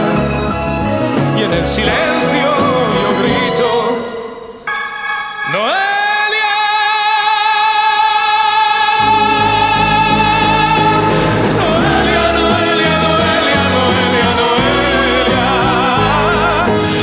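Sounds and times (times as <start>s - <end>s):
pop ballad accompaniment: 0.0s - 6.8s, 9.0s - 17.0s
low bass notes: 9.0s - 17.0s.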